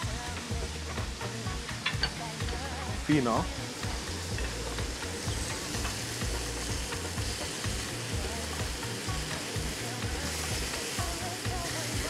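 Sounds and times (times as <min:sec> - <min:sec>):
chicken sizzling in oil: 0:00.0 - 0:12.0.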